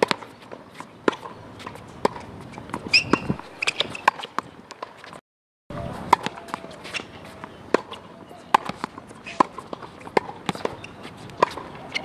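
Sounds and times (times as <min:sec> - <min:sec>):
tennis racket hitting ball: 0:00.0 - 0:00.3, 0:01.0 - 0:05.2, 0:05.8 - 0:12.0
brief high squeak: 0:02.9 - 0:04.1.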